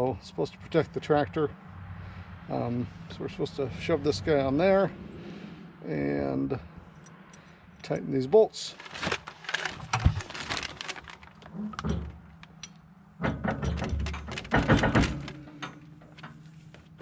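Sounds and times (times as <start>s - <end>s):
metal clicks knocks and scraping: 11.7s - 17.0s.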